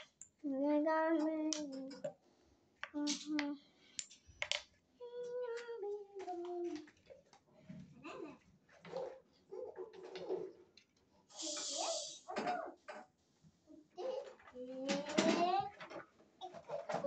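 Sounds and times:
young child singing: 0.4s - 2.1s, 2.9s - 3.7s, 5.0s - 6.9s, 14.5s - 15.7s.

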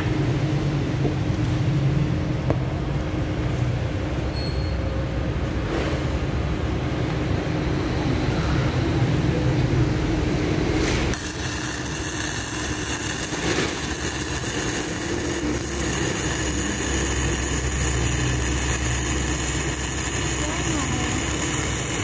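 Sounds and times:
welder hum: 10.2s - 22.0s
crackling hiss of welding arc: 10.8s - 22.0s.

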